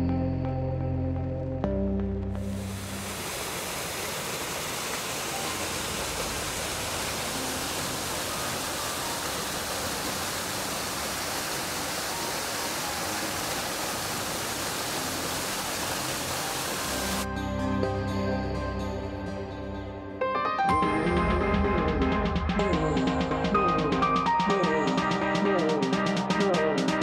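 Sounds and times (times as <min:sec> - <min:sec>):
water rushing over rocks: 0:02.6 - 0:17.2.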